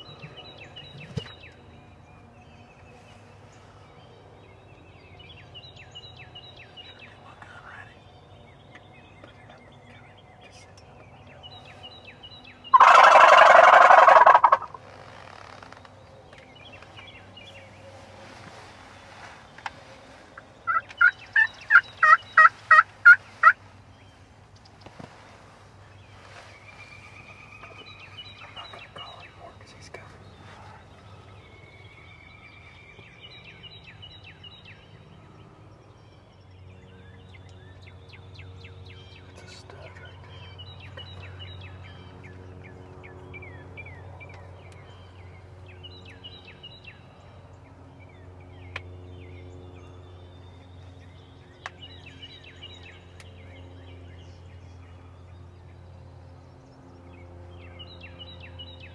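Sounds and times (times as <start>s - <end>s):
low steady rumble: 0.0s - 58.9s
songbird singing: 0.0s - 58.9s
turkey gobbling: 12.7s - 14.8s, 20.7s - 23.6s.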